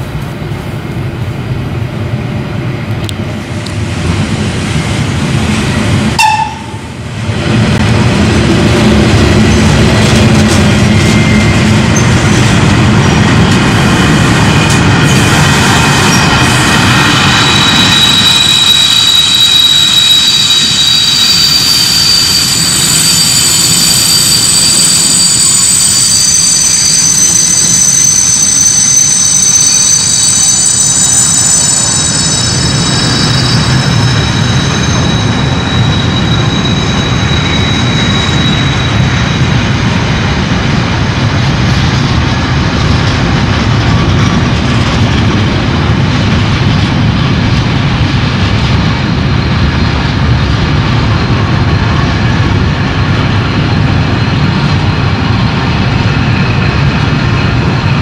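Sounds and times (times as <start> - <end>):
train wheels rumbling on track: 0.0 - 58.0
high thin ringing tones: 17.2 - 39.6.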